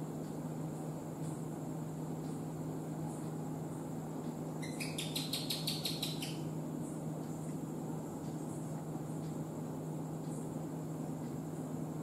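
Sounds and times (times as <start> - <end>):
gecko chirping: 4.6 - 6.5.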